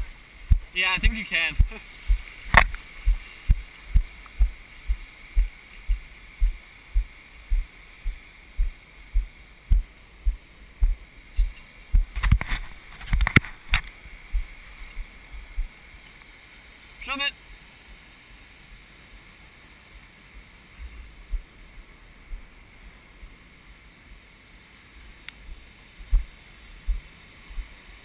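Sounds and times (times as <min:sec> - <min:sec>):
footsteps on wet sand: 0:00.0 - 0:15.8
surf hissing: 0:00.0 - 0:28.0
wind: 0:00.0 - 0:28.0
sharp knocks and rustles: 0:01.6 - 0:07.7, 0:08.6 - 0:15.7.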